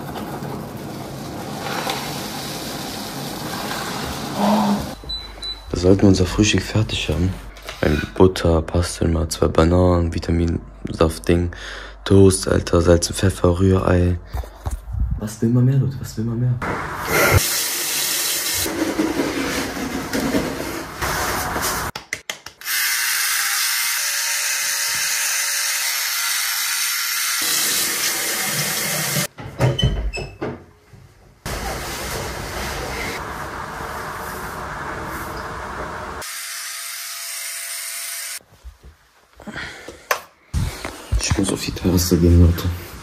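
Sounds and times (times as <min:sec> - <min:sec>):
electric beard trimmer buzzing: 0:22.7 - 0:27.6, 0:36.2 - 0:38.4.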